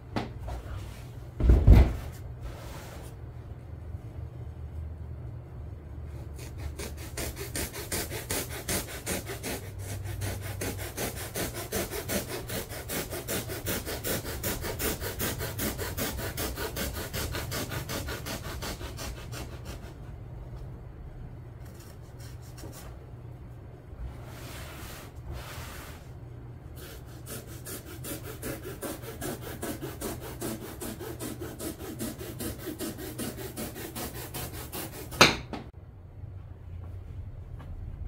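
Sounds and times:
hacksaw blade rasping on foam: 6.3s - 20.0s, 26.8s - 35.4s.

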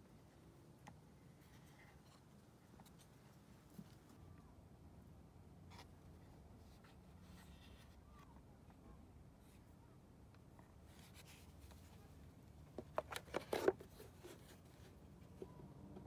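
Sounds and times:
quiet handling noise: 0.0s - 4.5s, 5.6s - 16.0s.

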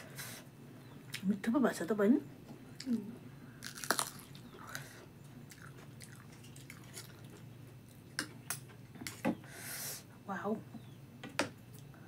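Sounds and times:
person chewing: 2.8s - 8.3s.

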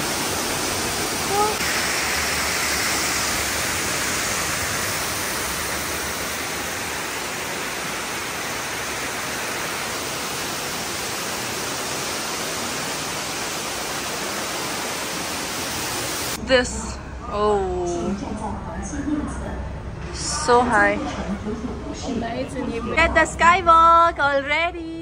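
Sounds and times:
waterfall rushing: 0.0s - 16.4s.

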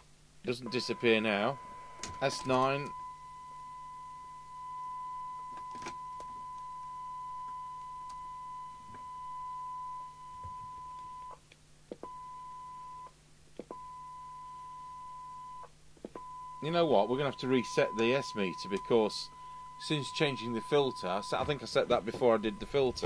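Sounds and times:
steady test tone from loudspeaker: 0.5s - 11.3s, 16.2s - 23.0s.

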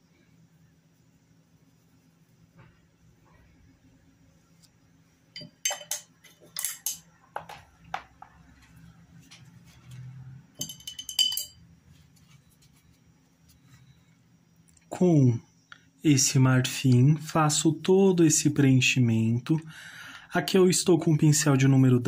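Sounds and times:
paintbrush clinking against cup: 5.4s - 7.5s, 10.6s - 11.6s.

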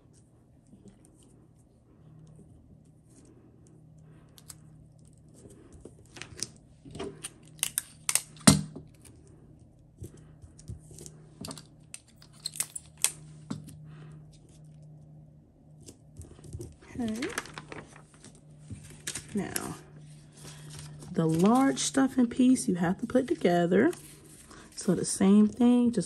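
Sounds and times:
paper crackling: 16.2s - 22.2s.

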